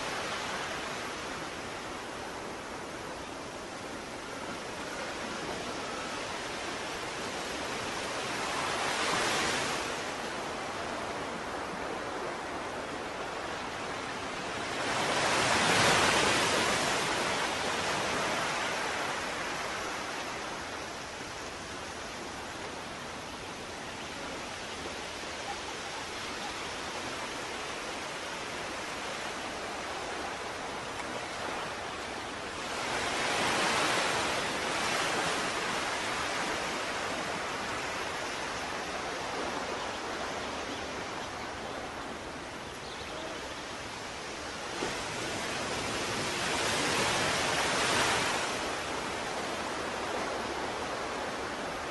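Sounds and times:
ocean surf waves breaking: 0.0s - 23.6s, 24.2s - 51.9s.

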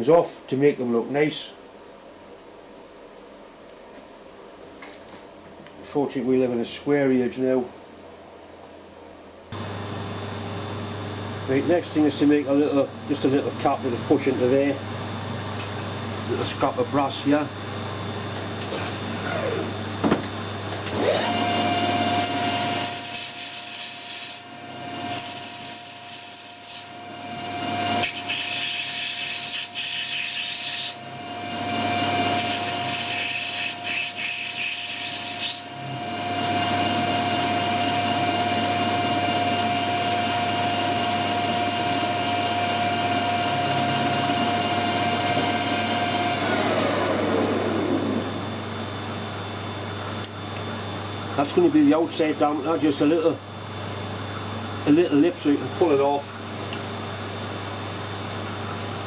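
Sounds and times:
metal lathe whining: 20.8s - 48.4s
cutting tool cutting brass: 22.2s - 27.0s, 27.9s - 31.1s, 32.3s - 35.8s, 39.3s - 43.0s.

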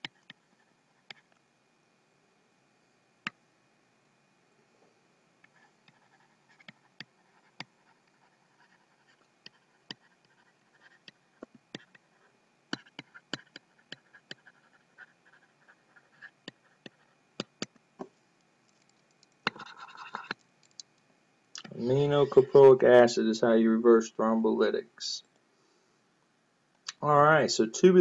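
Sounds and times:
stylus tapping on tablet: 16.5s - 18.1s
stylus scratchy strokes: 19.5s - 20.4s.

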